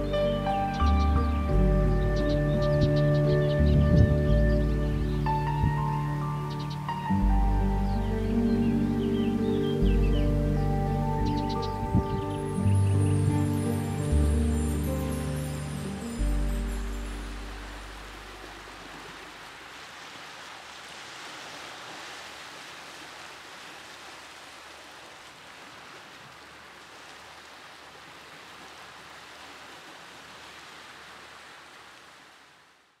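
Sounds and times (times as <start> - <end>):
sea waves washing over rocks: 17.2 - 32.6.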